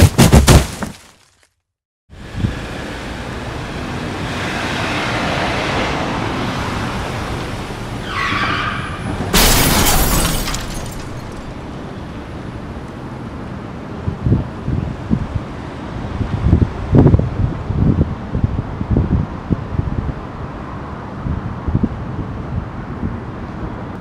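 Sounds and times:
car passing: 2.5s - 9.4s.

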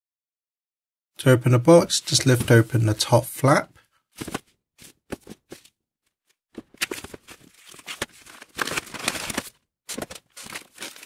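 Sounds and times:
cardboard scuffs and taps: 4.2s - 5.7s, 6.6s - 11.0s
packaging rubbing and rustling: 6.6s - 11.0s.

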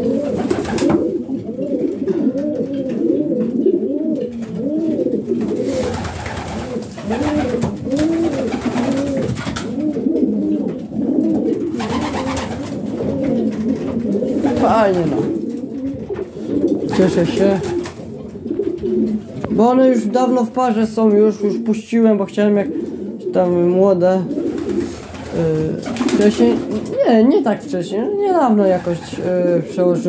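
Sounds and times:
wings flapping: 0.0s - 1.2s, 5.3s - 10.2s, 11.5s - 19.4s, 24.3s - 27.0s, 28.6s - 29.5s
pigeons cooing: 0.0s - 30.0s.

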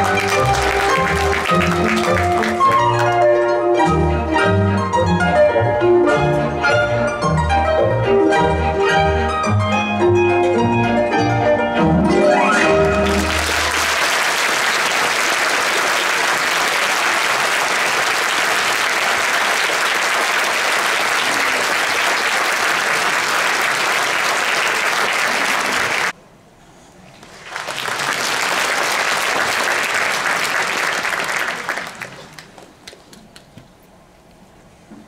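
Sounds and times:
audience applauding: 0.0s - 3.3s, 12.4s - 26.2s, 27.2s - 33.5s.

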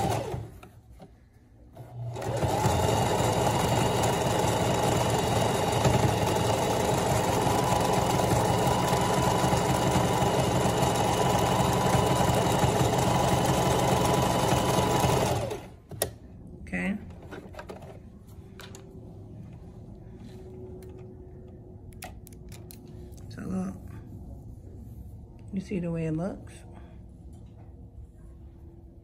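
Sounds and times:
sewing machine stitching: 0.0s - 0.7s, 1.8s - 15.8s.

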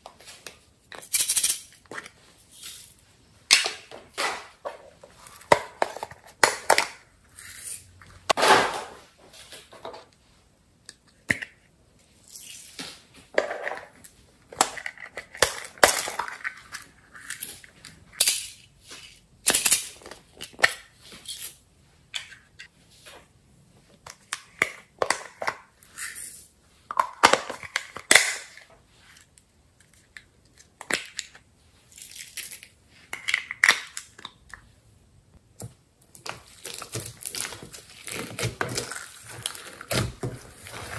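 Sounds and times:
plastic containers clicking and snapping: 5.4s - 7.0s.

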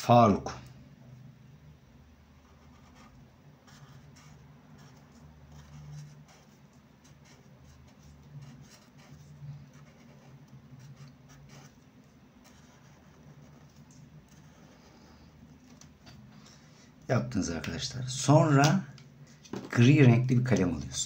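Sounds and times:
low steady hum: 0.0s - 21.0s
marker scratching on paper: 2.4s - 15.2s.

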